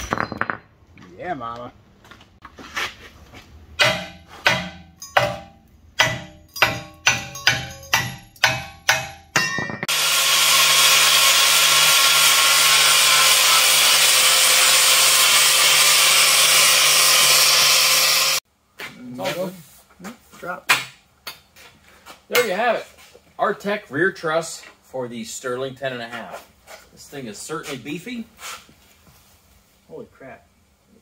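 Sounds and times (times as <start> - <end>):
hammer blows on steel: 3.8 - 10.0
angle grinder grinding steel: 9.8 - 18.4.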